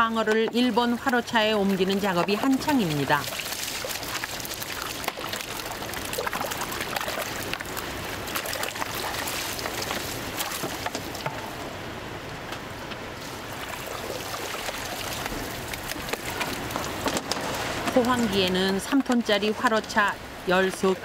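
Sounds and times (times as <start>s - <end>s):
water running and splashing: 0.0s - 11.6s, 13.2s - 21.0s
small splashes: 0.6s - 11.3s, 13.2s - 18.3s.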